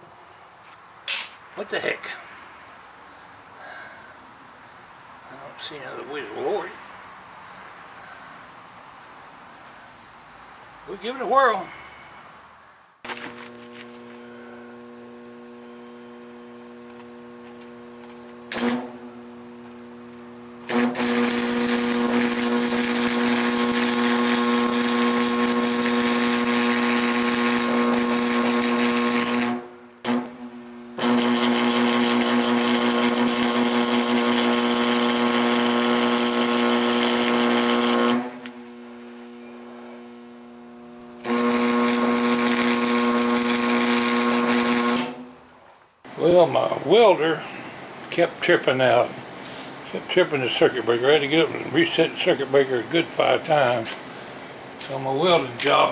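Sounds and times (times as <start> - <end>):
welding arc crackling and sizzling: 13.0 - 30.4, 31.0 - 39.2, 40.5 - 45.5
arc welder humming: 13.0 - 55.9.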